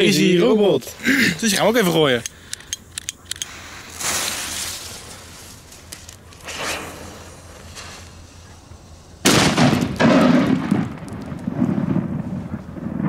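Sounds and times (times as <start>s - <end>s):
fuse hissing sparks: 0.8s - 9.4s
firecracker bang with echo: 9.2s - 13.0s.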